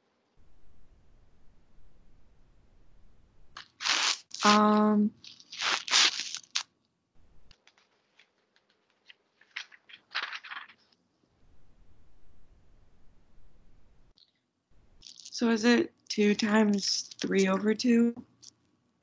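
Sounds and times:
rustling near microphone: 3.6s - 6.6s, 7.5s - 10.9s.

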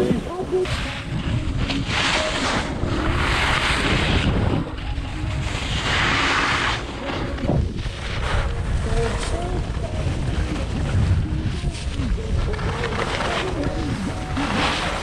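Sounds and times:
skis scraping snow: 0.0s - 15.0s
wind buffeting microphone: 7.2s - 14.4s.

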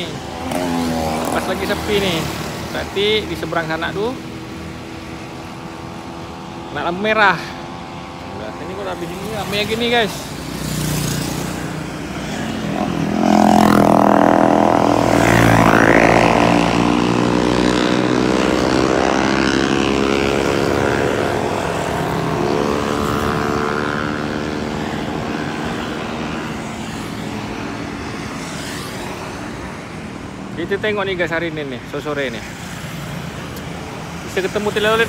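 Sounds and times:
motorcycles and traffic passing: 0.0s - 35.0s.

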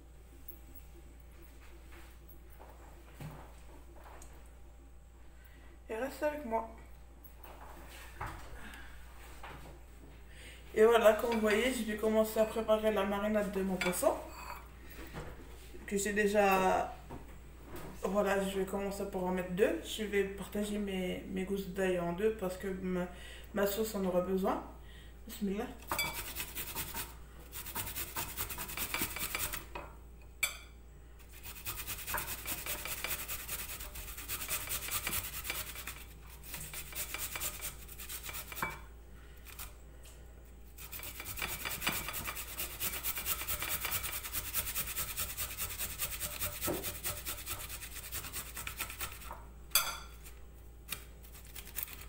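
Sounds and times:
garlic grated on metal grater: 25.9s - 29.7s, 31.2s - 38.8s, 40.8s - 49.4s, 50.9s - 52.0s.

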